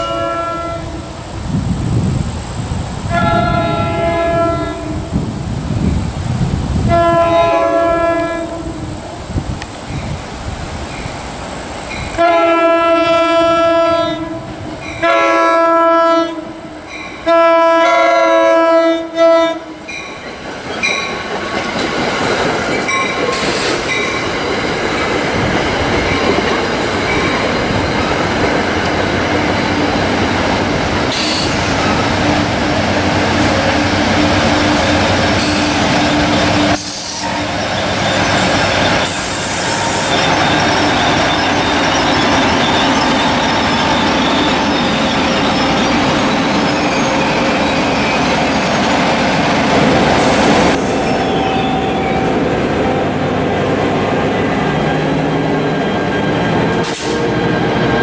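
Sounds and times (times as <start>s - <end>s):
train horn blasts: 0.0s - 1.1s, 3.1s - 5.2s, 6.8s - 8.9s, 12.1s - 20.0s
train wheels clattering over rails: 20.0s - 51.0s.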